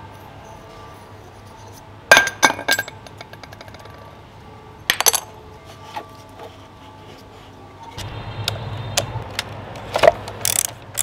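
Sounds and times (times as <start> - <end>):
metal parts clinking: 1.4 - 4.1, 4.9 - 6.0, 9.9 - 11.0.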